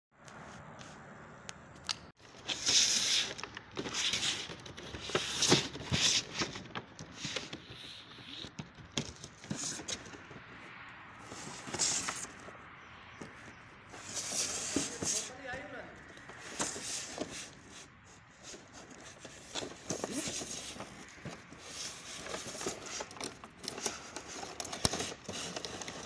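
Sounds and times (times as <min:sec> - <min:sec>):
cardboard box scraping on table: 0:11.2 - 0:12.5, 0:13.2 - 0:15.3, 0:16.1 - 0:26.0.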